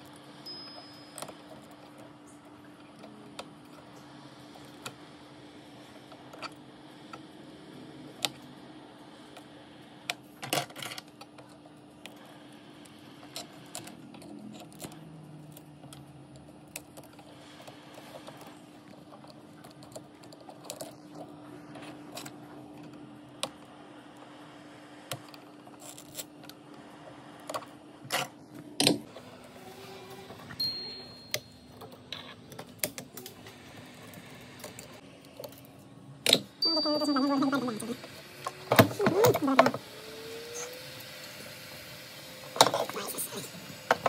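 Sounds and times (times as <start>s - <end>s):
hot air gun humming: 36.3s - 44.0s.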